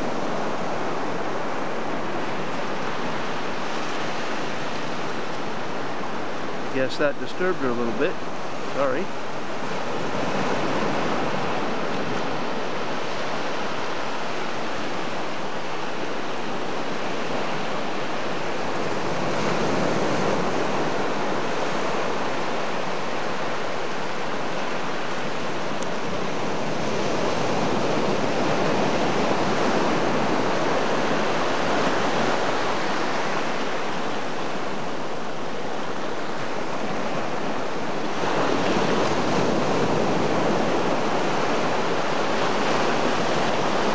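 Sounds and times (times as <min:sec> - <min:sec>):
ocean surf breaking on beach: 0:00.0 - 0:43.9.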